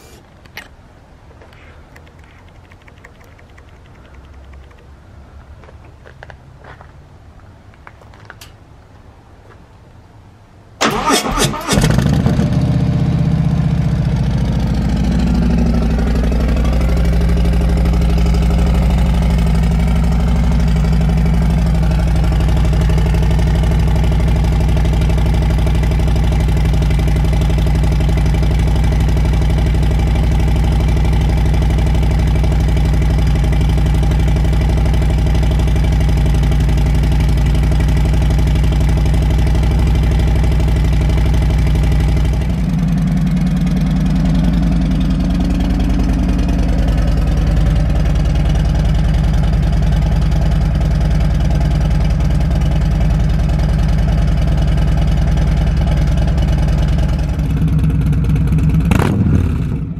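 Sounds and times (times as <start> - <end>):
starter motor cranking: 10.8 - 12.0
motorcycle engine idling: 11.8 - 59.9.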